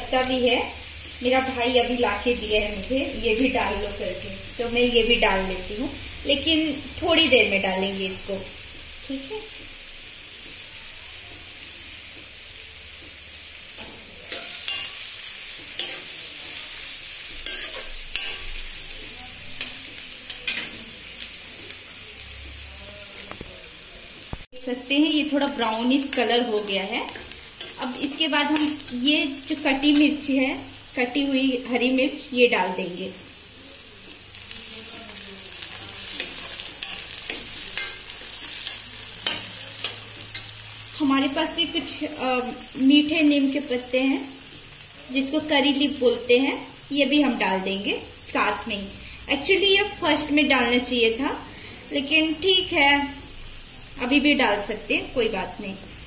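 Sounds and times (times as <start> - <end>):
onions sizzling in hot oil: 0.0 - 56.0
steel spatula scraping pan: 13.8 - 16.7, 17.3 - 18.6
metal spatula scraping pan: 13.8 - 20.8, 35.6 - 40.6.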